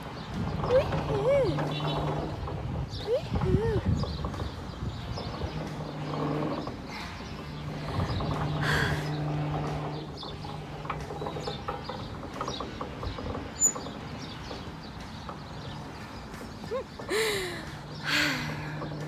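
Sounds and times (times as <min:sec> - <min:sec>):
wind on microphone: 0:00.0 - 0:13.5.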